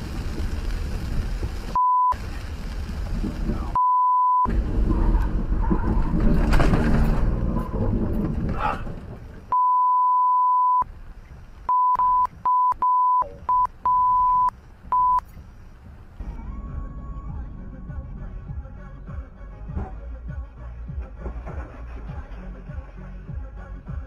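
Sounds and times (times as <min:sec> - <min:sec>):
car driving through heavy rain: 0:00.0 - 0:03.8, 0:04.5 - 0:09.5
censor bleeps: 0:01.8 - 0:02.2, 0:03.8 - 0:04.5, 0:09.5 - 0:10.9, 0:11.7 - 0:15.2.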